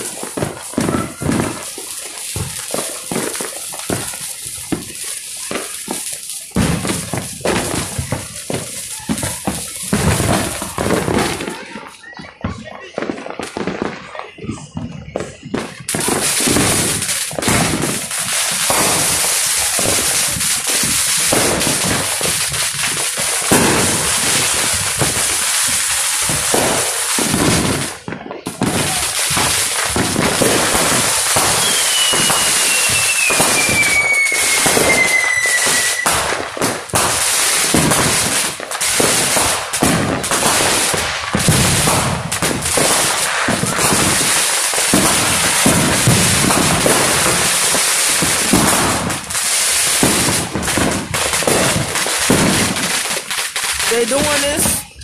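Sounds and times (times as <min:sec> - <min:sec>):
fireworks popping and crackling: 0:00.0 - 0:55.0
firework whistle falling in pitch: 0:31.5 - 0:36.2.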